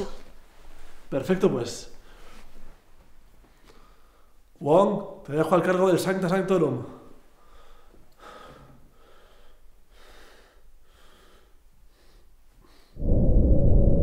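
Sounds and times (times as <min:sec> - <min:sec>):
man breathing slowly: 0:03.4 - 0:04.5, 0:07.2 - 0:13.0.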